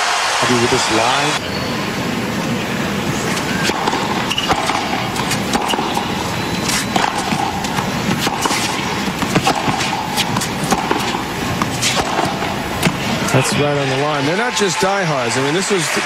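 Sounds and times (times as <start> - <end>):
crowd murmur: 0.0 - 16.0
tennis ball hits: 3.1 - 13.4
tennis ball bouncing on court: 3.2 - 13.3.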